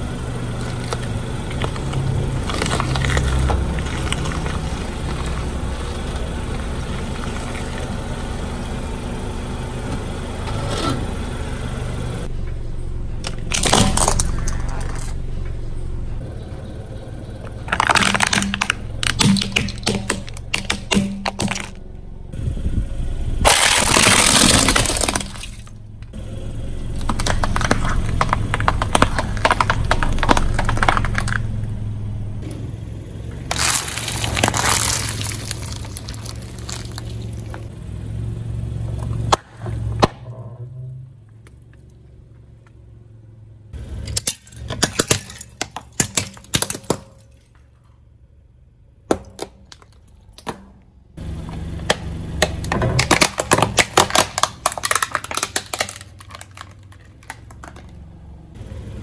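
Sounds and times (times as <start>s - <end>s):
tyre crushing plastic toys: 0.5s - 7.9s, 13.2s - 15.2s, 17.4s - 21.8s, 23.4s - 25.8s, 26.9s - 31.6s, 33.5s - 37.7s, 44.0s - 47.6s, 49.1s - 50.8s, 51.4s - 58.0s
plastic snapping: 17.7s - 21.8s, 51.9s - 58.0s.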